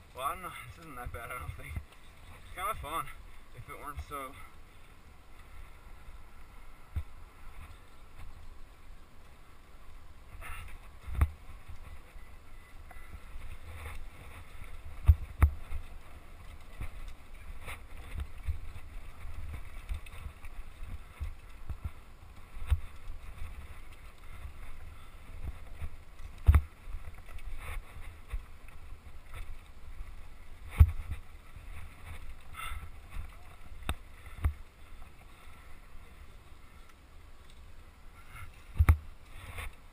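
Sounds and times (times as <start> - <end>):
bike rattling over trail: 0.0 - 39.9
low wind rumble on microphone: 0.0 - 39.9
sharp knocks over bumps: 30.7 - 31.2.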